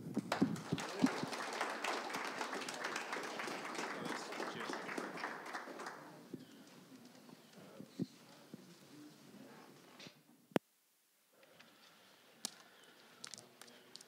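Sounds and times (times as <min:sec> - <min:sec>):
small audience applauding: 0:00.0 - 0:06.3.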